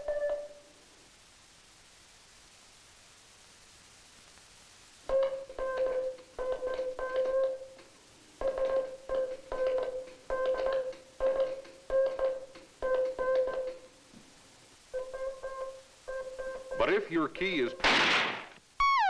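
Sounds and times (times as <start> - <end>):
morse code beeps: 15.0 - 17.8.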